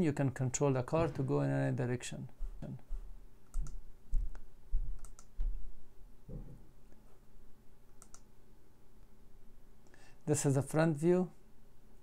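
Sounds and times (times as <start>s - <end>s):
computer mouse clicking: 3.5s - 5.4s, 7.9s - 8.3s.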